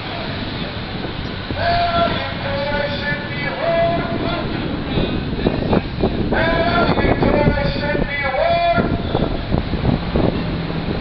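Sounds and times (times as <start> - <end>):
street noise: 0.0 - 11.0
man shouting through megaphone: 1.6 - 5.0, 6.3 - 9.4.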